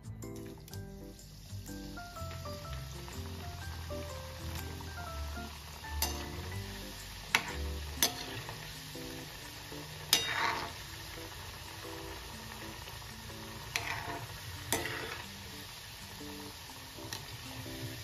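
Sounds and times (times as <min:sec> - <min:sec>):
dough deep-frying in oil: 0:00.2 - 0:18.0
spoon tapping against pan: 0:06.0 - 0:06.5.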